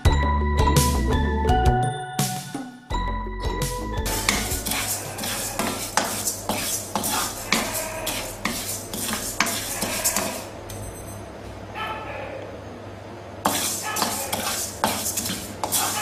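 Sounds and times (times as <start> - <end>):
rice scraped in a wok: 4.1 - 10.5, 13.4 - 16.0.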